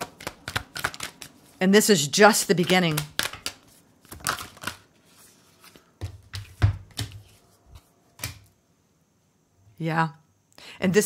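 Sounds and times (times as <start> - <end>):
cards being shuffled: 0.0 - 1.6, 2.4 - 8.5.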